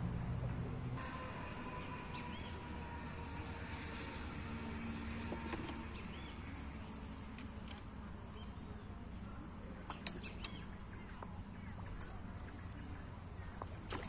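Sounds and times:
small birds chirping: 1.7 - 14.0.

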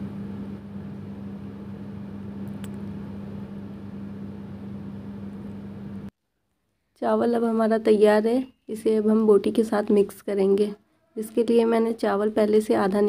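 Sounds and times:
low appliance hum: 0.0 - 6.1.

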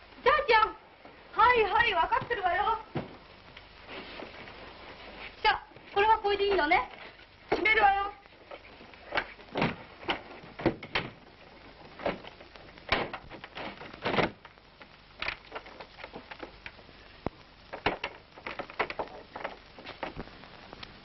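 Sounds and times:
old film soundtrack hiss: 0.0 - 21.0
trunk knocks and thumps: 9.2 - 11.2.

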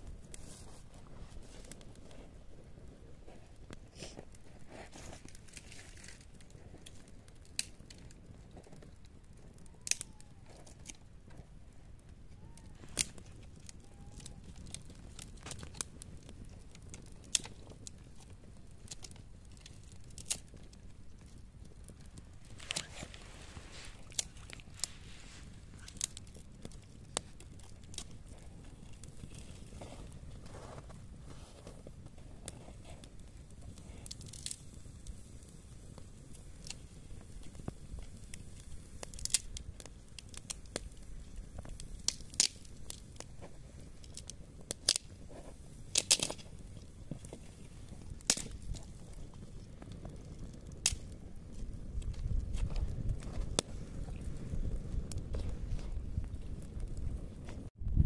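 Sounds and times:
fire crackling: 0.0 - 58.0
fire snaps and pops: 0.0 - 58.0
sharp clicks and light crunches: 3.7 - 11.4, 12.3 - 35.2, 36.0 - 53.7
low rumble: 55.4 - 58.0.

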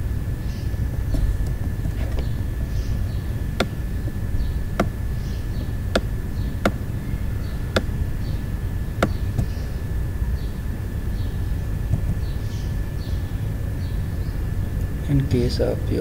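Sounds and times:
low rumble: 0.0 - 16.0
thin high whine: 0.0 - 16.0.

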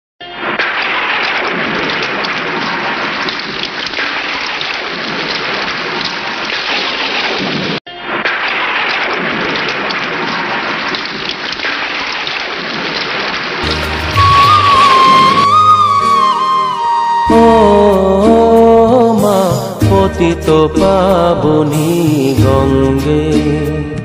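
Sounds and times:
rain falling on water: 0.4 - 15.6.

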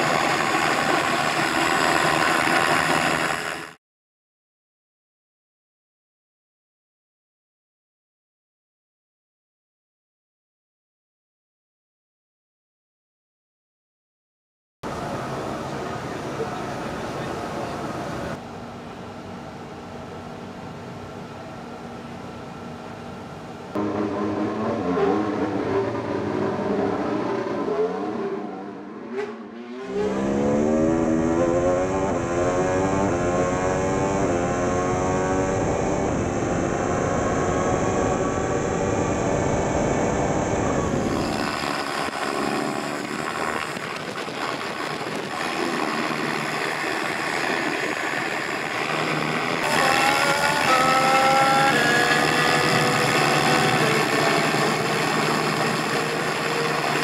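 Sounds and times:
racing car engine revving: 23.8 - 43.9, 44.5 - 57.0.

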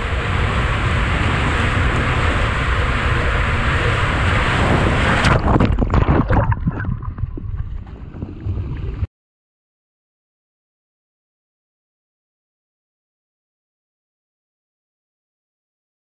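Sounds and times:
rushing through waterslide tube: 0.0 - 9.1
splashing into water: 5.0 - 9.0.

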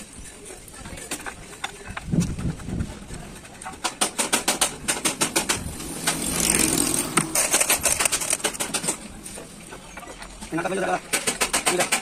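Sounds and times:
gearbox gears clicking: 3.8 - 9.5.

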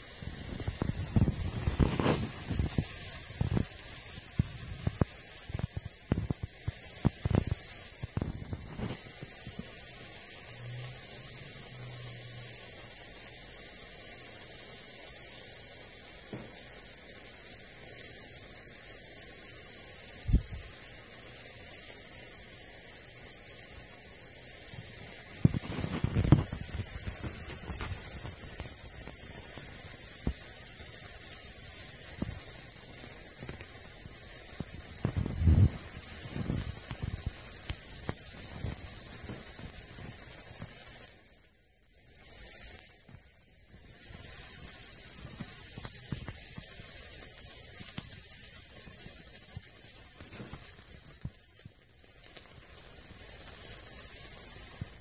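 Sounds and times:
hot metal sizzling in cheese: 0.0 - 55.0.

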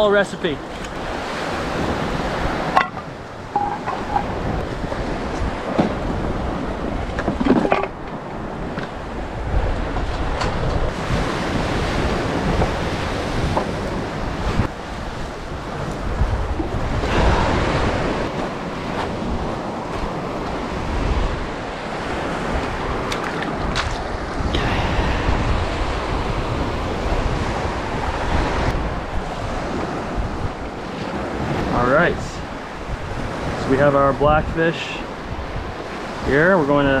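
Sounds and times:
wind buffeting microphone: 0.0 - 37.0
waves washing on pebble beach: 8.4 - 30.2.

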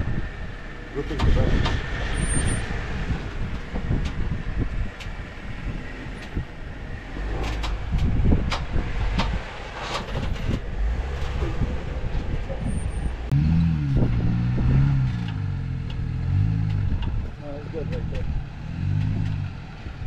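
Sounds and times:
low engine rumble: 0.0 - 20.0
sharp clicks and knocks: 7.3 - 11.4, 15.0 - 19.5.

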